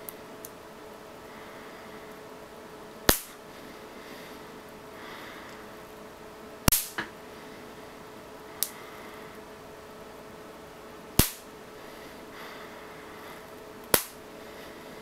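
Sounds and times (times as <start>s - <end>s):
rubber band snapping on foot: 3.1s - 3.4s, 11.2s - 11.5s, 13.9s - 14.2s.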